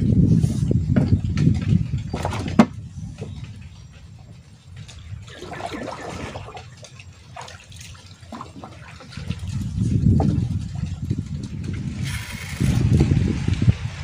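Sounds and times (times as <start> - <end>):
paddle splashing in water: 4.9 - 12.3.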